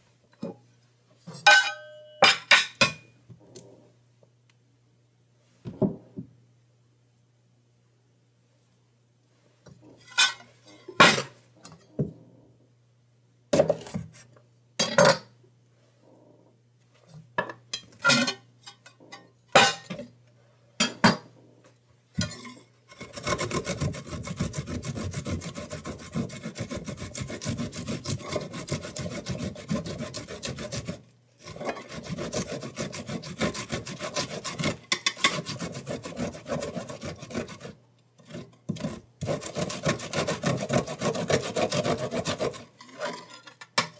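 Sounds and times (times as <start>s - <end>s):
ginger grated on metal grater: 22.9s - 43.3s.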